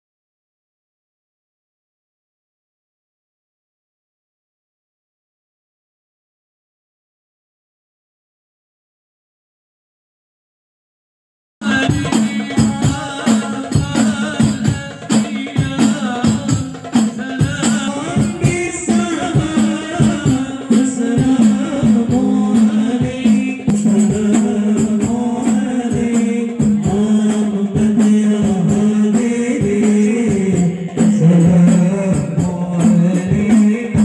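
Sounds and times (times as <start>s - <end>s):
frame drums beating: 11.6s - 34.0s
lead voice over microphone: 11.6s - 34.0s
men singing: 11.6s - 34.0s.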